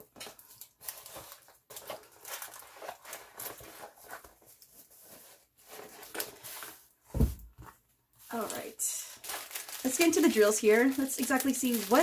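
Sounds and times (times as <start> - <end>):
canvas rustling and crinkling: 8.3 - 12.0.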